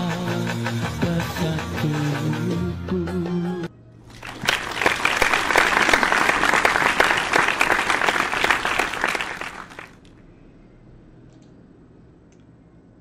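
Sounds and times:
crowd applauding: 4.1s - 10.1s.

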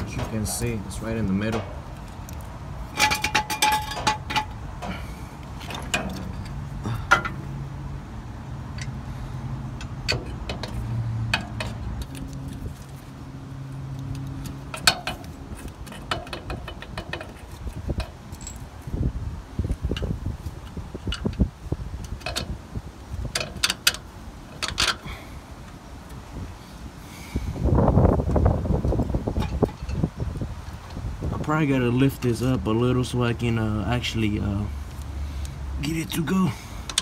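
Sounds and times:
metallic clinks and knocks: 3.0s - 5.0s, 14.1s - 18.7s.

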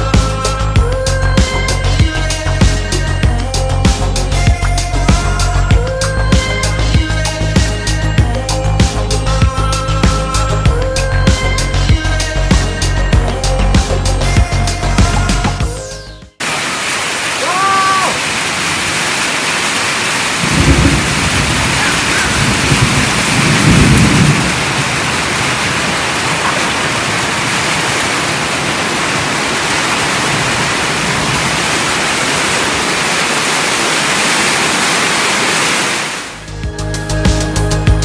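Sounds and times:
music: 0.0s - 16.4s, 36.4s - 38.0s
heavy rain falling: 16.4s - 36.5s.

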